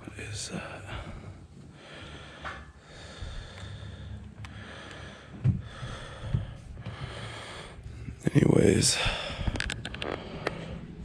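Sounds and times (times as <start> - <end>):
breathing close to microphone: 0.6 - 8.2, 8.8 - 11.0
dull low thumps: 5.1 - 8.2.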